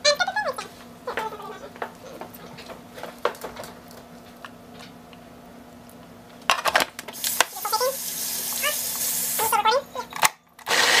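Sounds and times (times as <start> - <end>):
food processor motor whirring: 10.6 - 11.0.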